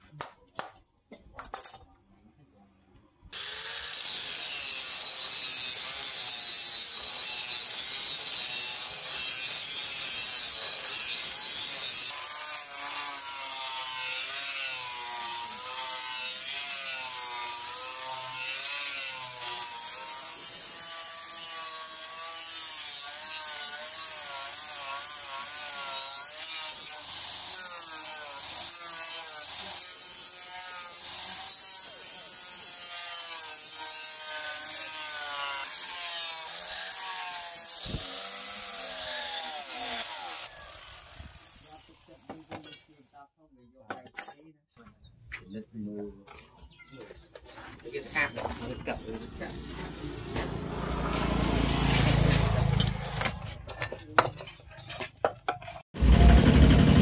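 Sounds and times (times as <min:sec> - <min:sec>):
angle grinder grinding metal: 0:03.4 - 0:43.0, 0:47.8 - 0:57.0.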